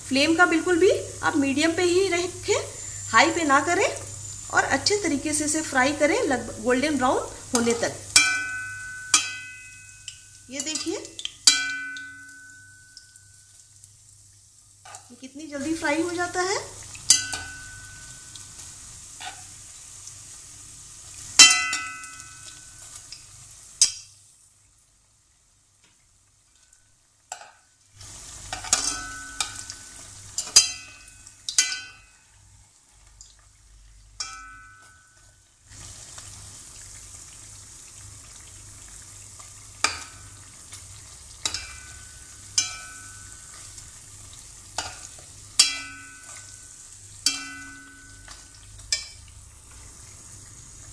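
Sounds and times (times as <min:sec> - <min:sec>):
bread deep-frying in oil: 0:00.0 - 0:50.9
spatula clinking against wok: 0:07.6 - 0:13.2, 0:17.0 - 0:18.4, 0:21.4 - 0:22.7, 0:28.5 - 0:32.2, 0:34.2 - 0:35.3, 0:41.4 - 0:43.7, 0:44.8 - 0:49.3
pan ringing: 0:08.2 - 0:10.4, 0:11.5 - 0:13.4, 0:17.1 - 0:18.5, 0:21.4 - 0:22.8, 0:28.7 - 0:30.0, 0:34.2 - 0:35.3, 0:41.4 - 0:43.5, 0:45.6 - 0:49.2.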